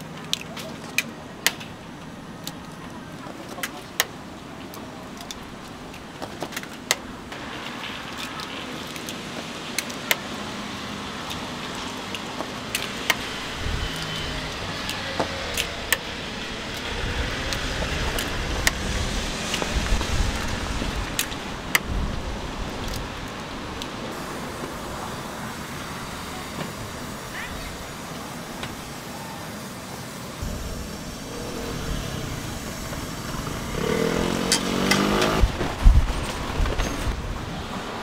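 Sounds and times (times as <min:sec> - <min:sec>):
street traffic hum: 0:00.0 - 0:38.0
vehicle rumbling past: 0:30.4 - 0:38.0.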